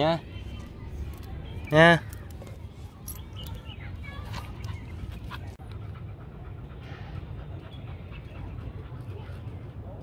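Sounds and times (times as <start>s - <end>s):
dogs panting: 2.1s - 10.0s.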